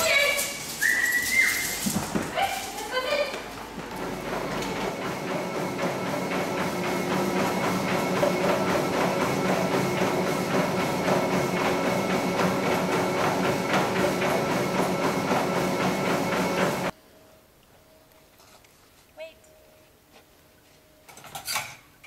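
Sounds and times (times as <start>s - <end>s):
dog paws padding on belt: 0.0s - 4.9s
treadmill whine: 0.0s - 17.0s.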